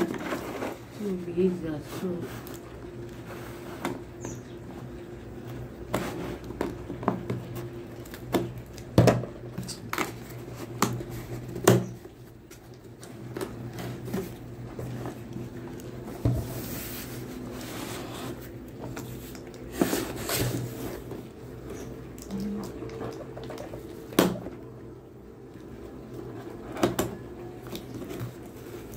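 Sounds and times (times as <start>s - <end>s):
cardboard scraping and knocking: 16.0s - 21.2s.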